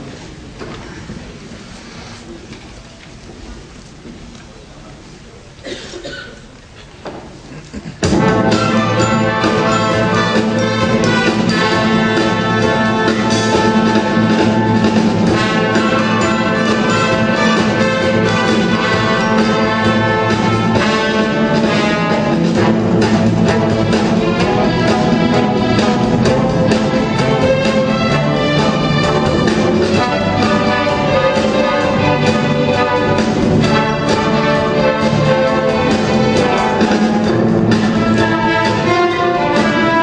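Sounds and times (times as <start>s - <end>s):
symphony orchestra with brass: 8.0s - 40.0s.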